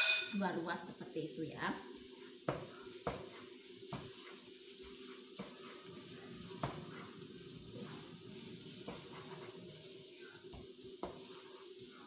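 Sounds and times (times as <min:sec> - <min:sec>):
vegetables sizzling in a pan: 0:00.0 - 0:12.0
wooden spatula knocking pan: 0:02.4 - 0:04.2, 0:06.6 - 0:07.1, 0:10.5 - 0:11.3.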